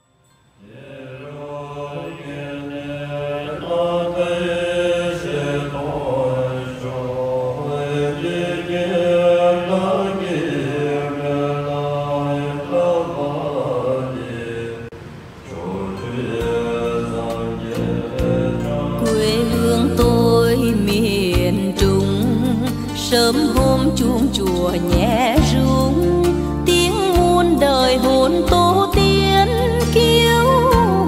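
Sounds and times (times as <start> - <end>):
low voices chanting in unison: 0.6 - 20.2.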